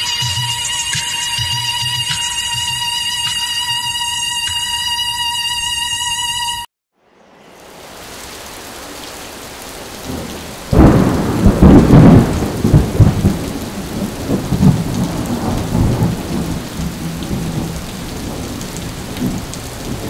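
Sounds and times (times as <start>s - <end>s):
rain falling: 0.0s - 3.8s, 7.5s - 20.0s
thunder clap and rumble: 10.0s - 20.0s.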